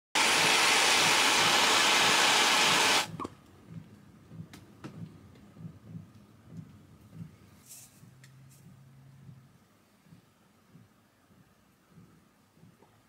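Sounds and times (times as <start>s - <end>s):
gas torch hissing: 0.2s - 3.2s.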